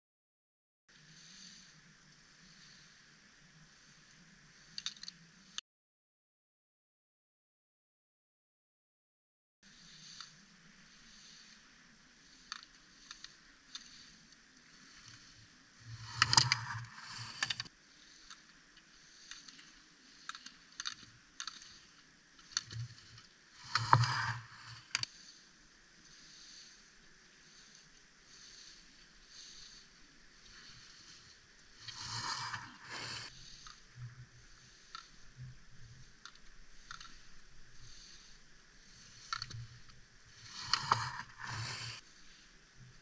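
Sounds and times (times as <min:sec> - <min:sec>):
skis scraping on hard snow: 0:12.2 - 0:18.2, 0:22.7 - 0:25.4, 0:27.4 - 0:34.9, 0:38.8 - 0:42.4.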